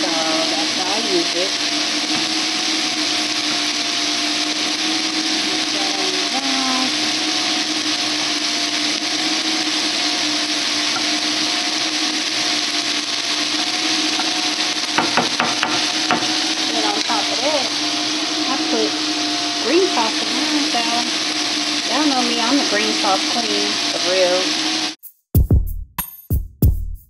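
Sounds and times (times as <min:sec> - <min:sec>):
spoon knocking against pan: 0:15.0 - 0:16.4.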